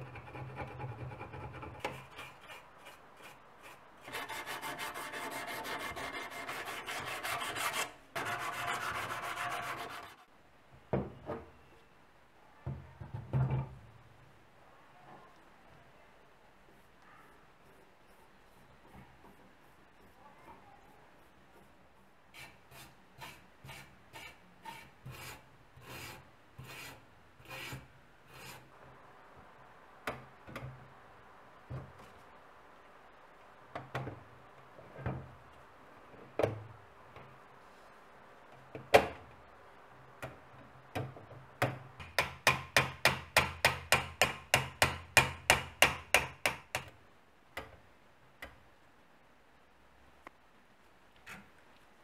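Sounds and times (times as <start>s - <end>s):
brush scrubbing sheet metal: 0.0s - 10.3s.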